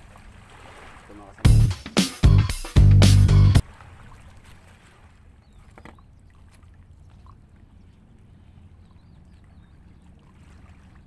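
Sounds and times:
small waves lapping against rocks: 0.0s - 1.4s, 3.6s - 11.0s.

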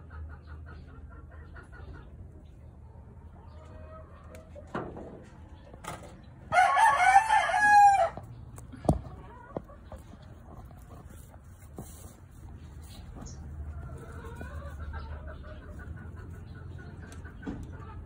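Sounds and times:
rooster crowing: 6.5s - 8.2s.

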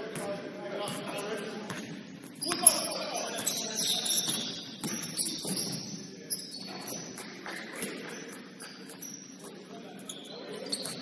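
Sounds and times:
murmur of voices in echoing hall: 0.0s - 11.0s
shoe squeaks: 2.3s - 11.0s.

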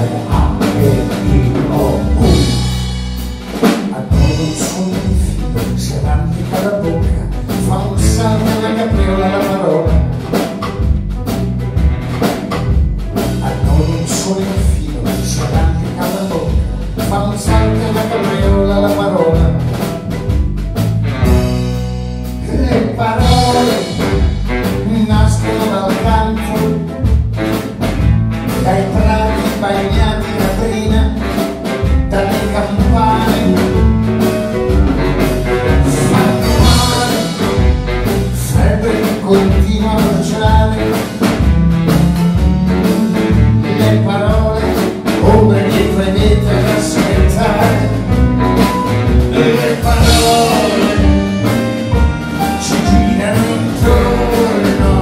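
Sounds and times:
man singing into microphone: 0.0s - 2.7s, 3.8s - 10.2s, 13.3s - 19.7s, 22.4s - 27.0s, 28.6s - 31.4s, 32.1s - 33.8s, 35.8s - 41.2s, 43.7s - 48.2s, 49.3s - 51.4s, 52.4s - 55.0s
live jazzy band playing: 0.0s - 55.0s.

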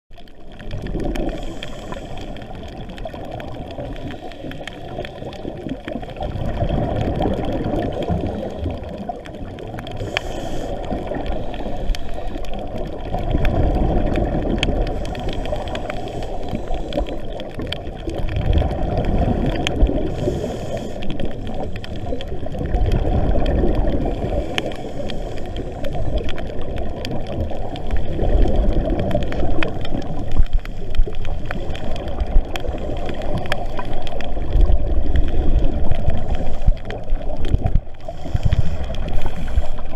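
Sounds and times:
underwater bubbles gurgling: 0.1s - 39.9s
faint regulator hiss: 1.2s - 2.4s, 10.0s - 12.6s, 20.0s - 22.2s, 24.2s - 26.3s.

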